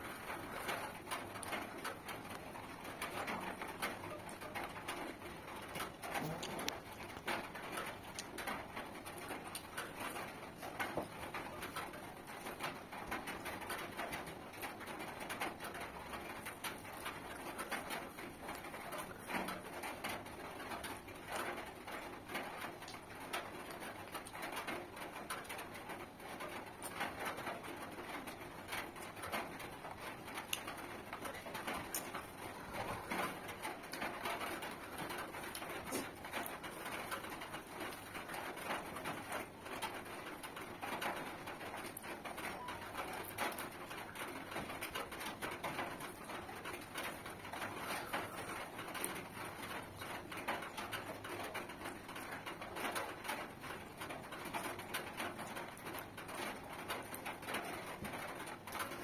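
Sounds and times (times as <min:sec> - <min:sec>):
chewing and lip smacks: 0:05.6 - 0:12.0, 0:30.4 - 0:39.2.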